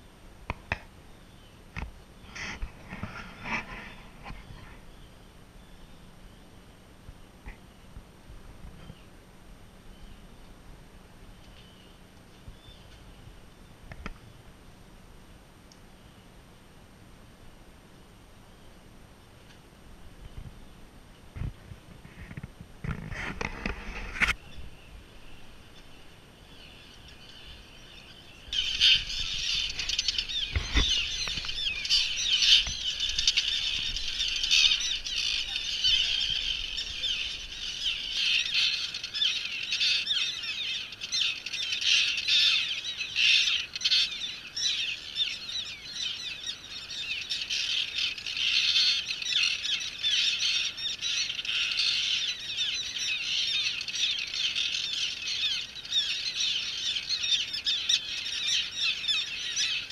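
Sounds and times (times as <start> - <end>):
terns calling: 22.9 - 59.9.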